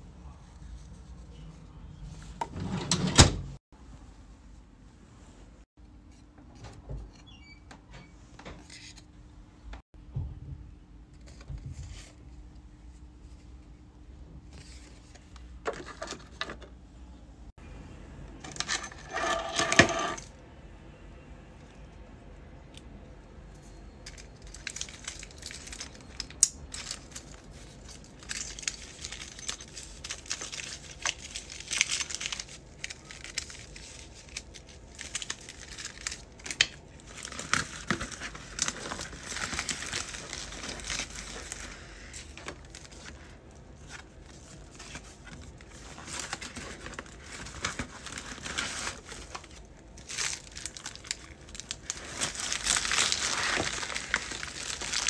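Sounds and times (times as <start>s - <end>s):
plastic packaging crinkling: 24.0s - 55.0s.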